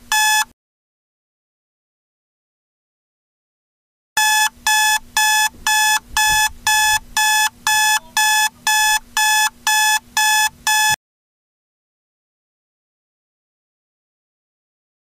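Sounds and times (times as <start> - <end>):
alarm clock beeping: 0.1 - 0.5, 4.2 - 11.0.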